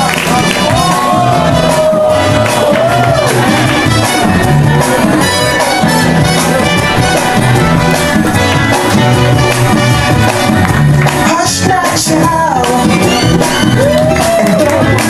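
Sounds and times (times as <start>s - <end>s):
loud music with bass beat: 0.0s - 15.0s
person singing: 11.2s - 15.0s.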